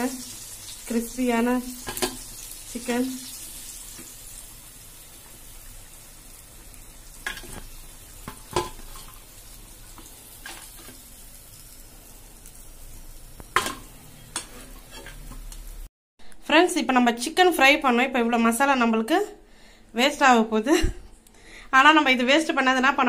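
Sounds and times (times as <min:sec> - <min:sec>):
hot oil sizzling: 0:00.0 - 0:15.9.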